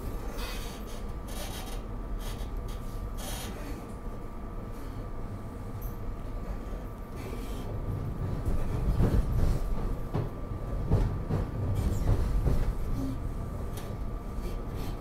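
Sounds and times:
train wheels rumbling on rail: 5.1 - 15.0.

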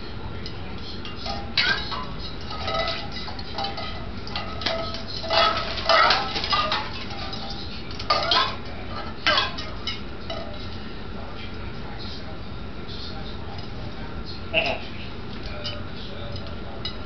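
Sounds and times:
dishes clinking and clattering: 0.4 - 10.9, 14.6 - 17.0.

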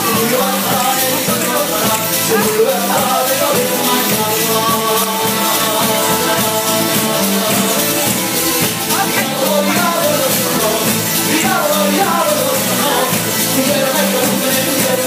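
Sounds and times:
live band with singer: 0.0 - 15.0
percussion: 0.0 - 15.0.

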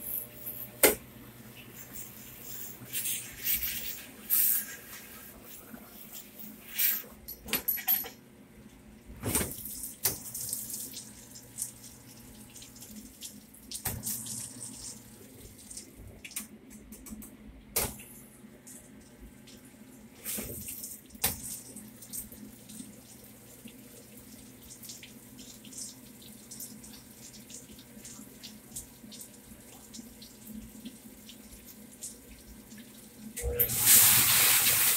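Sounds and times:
water running and splashing: 19.4 - 34.9.

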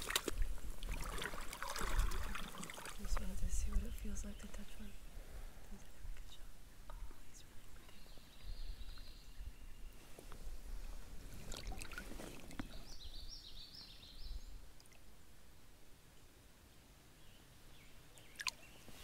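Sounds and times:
water splashing in a stream: 0.0 - 4.2, 11.2 - 13.1, 18.2 - 19.0.

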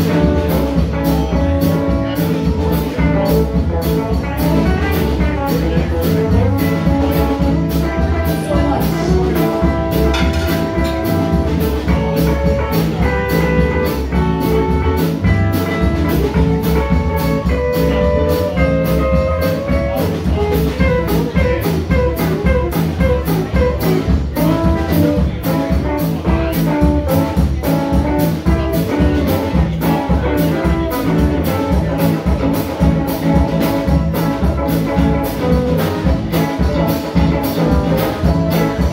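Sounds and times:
drum kit steady beat: 0.0 - 38.9
electric guitars ringing: 6.4 - 26.2.

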